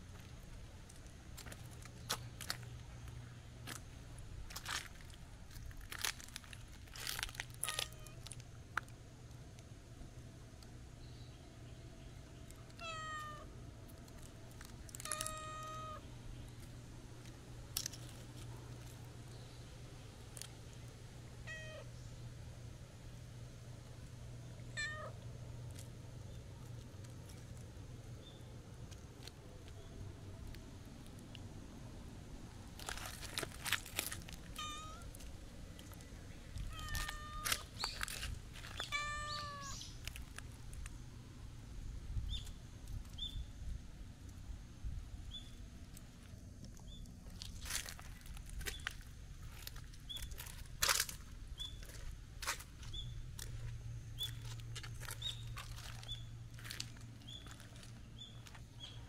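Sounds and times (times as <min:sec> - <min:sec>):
crackling rustles: 0:00.0 - 0:09.8, 0:12.2 - 0:21.5, 0:22.2 - 0:43.4, 0:45.2 - 0:59.0
cat meowing: 0:12.8 - 0:13.5, 0:15.0 - 0:16.0, 0:21.5 - 0:21.9, 0:24.8 - 0:25.2, 0:34.6 - 0:35.1, 0:36.6 - 0:37.6, 0:38.8 - 0:39.8.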